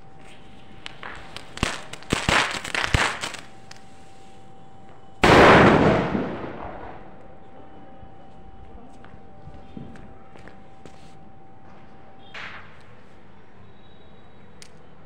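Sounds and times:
firecrackers popping: 0.0s - 4.2s, 5.2s - 7.3s
loud firecracker blast with hiss: 0.2s - 4.4s, 5.2s - 7.0s.

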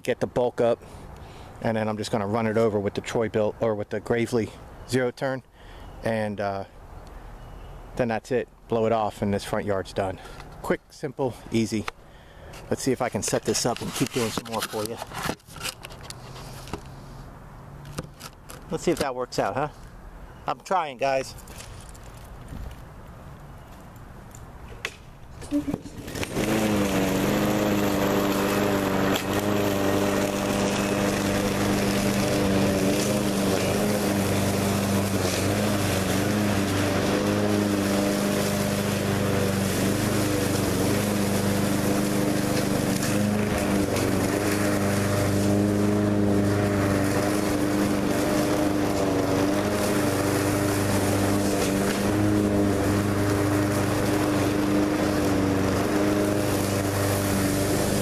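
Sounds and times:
lawn mower engine running: 11.3s - 19.8s, 25.4s - 58.0s.

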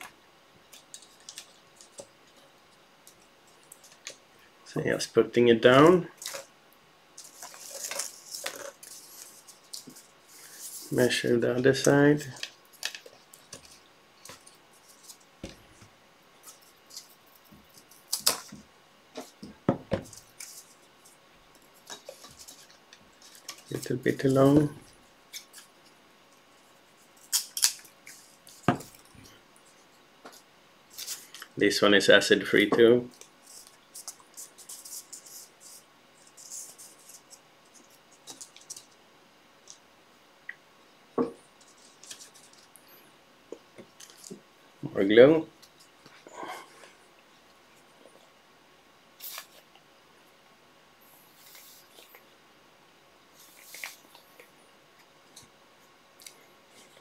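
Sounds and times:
paper rustling: 7.2s - 25.7s, 41.6s - 42.8s, 53.4s - 54.4s.

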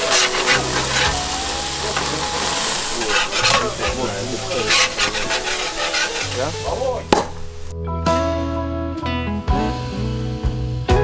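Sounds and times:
meat sizzling on a grill: 0.0s - 7.7s.

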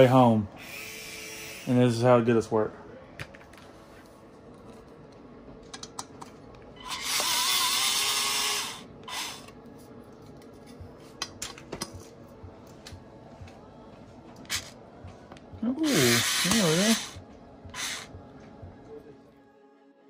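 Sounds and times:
cordless screwdriver motor whine: 0.6s - 1.7s, 6.8s - 9.5s, 15.8s - 17.2s.

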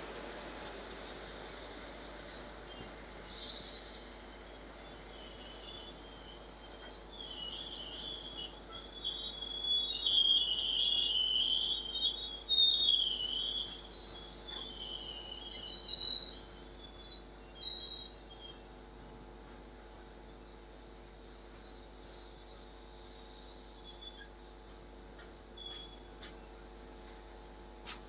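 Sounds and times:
freight train rolling: 0.0s - 28.0s
train wheels squealing: 2.7s - 18.7s, 19.5s - 26.6s.

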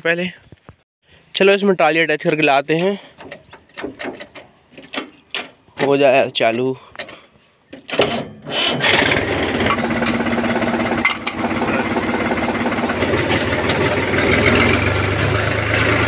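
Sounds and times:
tractor diesel engine idling: 9.6s - 16.0s.

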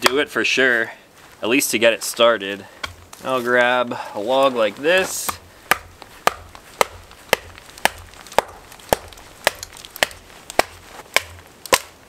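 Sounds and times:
branch knocking on knife spine: 5.0s - 11.9s.

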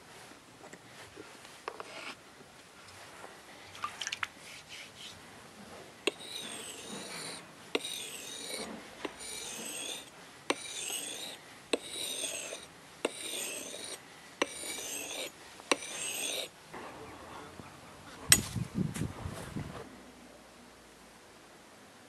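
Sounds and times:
blade scraping on whetstone: 1.7s - 2.2s, 6.0s - 16.5s.

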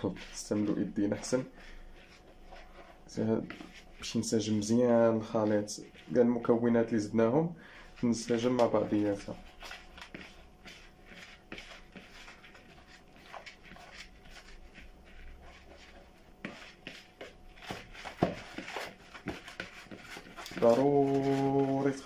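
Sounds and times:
hands rustling food in plastic bowl: 8.0s - 22.0s.

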